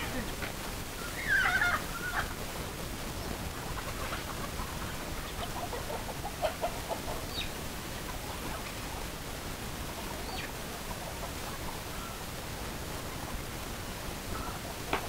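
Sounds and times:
chickens clucking: 0:00.0 - 0:15.0
steady hiss: 0:00.0 - 0:15.0
chicken wavering call: 0:01.0 - 0:02.4.

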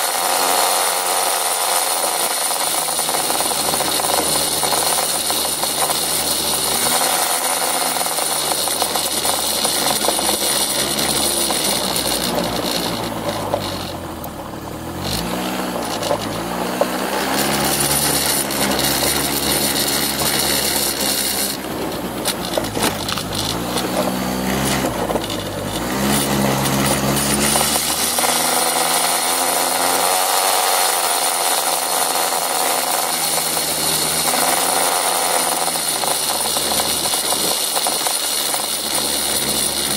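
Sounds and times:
scooter engine running: 0:00.0 - 0:39.9
tyres on gravel rough noise: 0:00.0 - 0:39.9.

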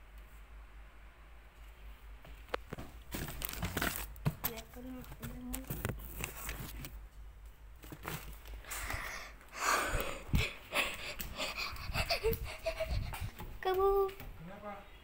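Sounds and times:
breathy noise on microphone: 0:08.4 - 0:14.0.

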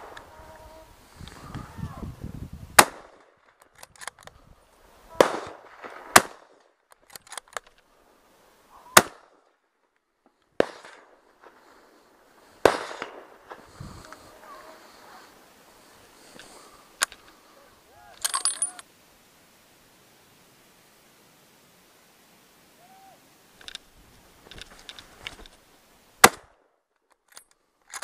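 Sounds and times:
rifle shots echoing: 0:02.8 - 0:03.6, 0:05.1 - 0:06.6, 0:09.0 - 0:09.4, 0:10.6 - 0:11.3, 0:12.6 - 0:15.0, 0:26.2 - 0:26.6.

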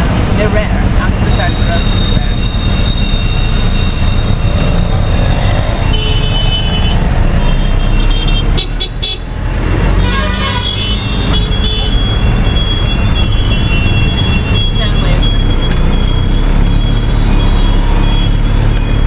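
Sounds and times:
auto-rickshaw engine running rough: 0:00.0 - 0:19.0
road traffic: 0:00.0 - 0:19.0
vehicle horns tooting: 0:05.8 - 0:09.3, 0:10.0 - 0:15.5.

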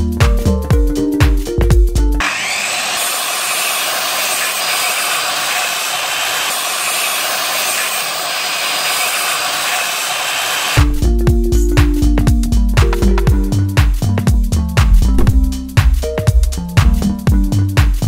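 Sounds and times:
circular saw cutting wood: 0:02.2 - 0:10.9.

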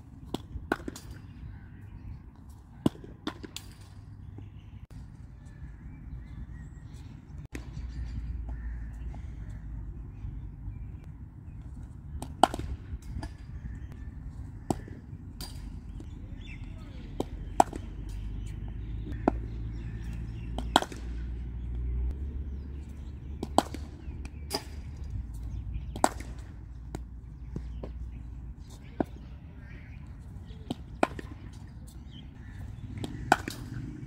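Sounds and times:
cricket bat hitting ball: 0:20.5 - 0:21.2, 0:33.0 - 0:34.0.

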